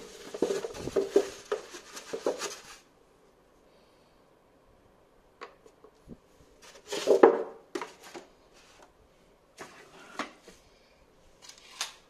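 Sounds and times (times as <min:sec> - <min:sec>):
packaging being moved: 0:00.0 - 0:02.8
plastic bag rustling: 0:00.0 - 0:02.9.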